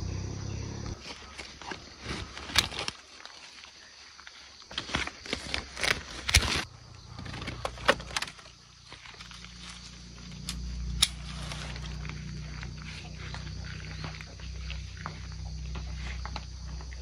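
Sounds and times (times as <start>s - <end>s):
leaves rustling: 0.9s - 16.6s
pruning shears clicking: 10.3s - 12.0s.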